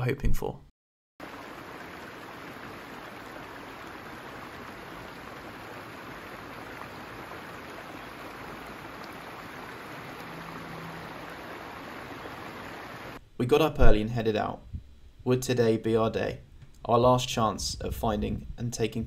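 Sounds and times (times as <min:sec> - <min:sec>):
stream running over stones: 0:01.2 - 0:13.2.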